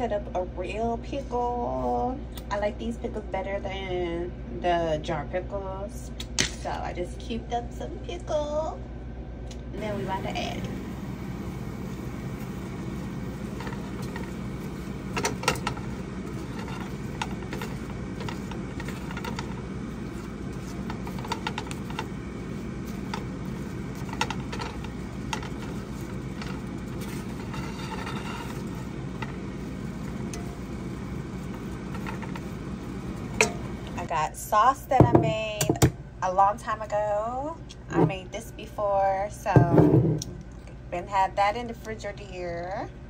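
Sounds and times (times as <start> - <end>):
steady low hum: 0.0 - 43.0
utensil scraping a pan: 11.3 - 34.1.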